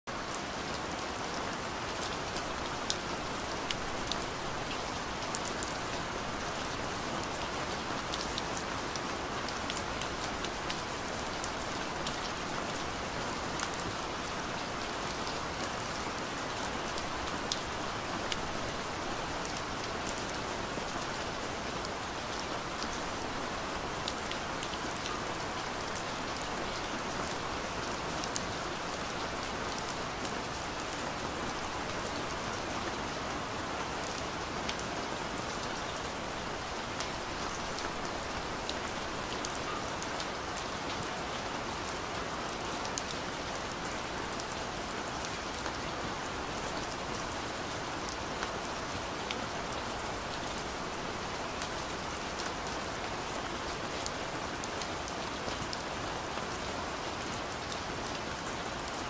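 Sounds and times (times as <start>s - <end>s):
steady rain hiss: 0.1s - 59.0s.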